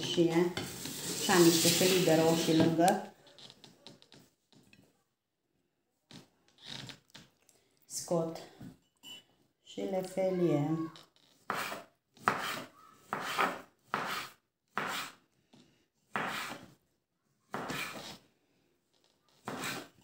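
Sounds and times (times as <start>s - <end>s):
knife slicing tomato on wood board: 11.5s - 15.2s, 16.1s - 16.7s, 17.5s - 18.2s, 19.4s - 20.0s.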